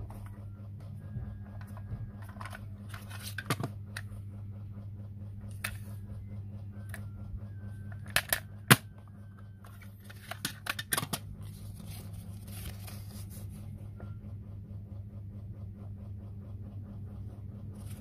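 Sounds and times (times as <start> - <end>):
steady low hum: 0.0 - 18.0
plastic case clicking and clattering: 10.0 - 11.3
paper insert rustling: 11.4 - 13.6.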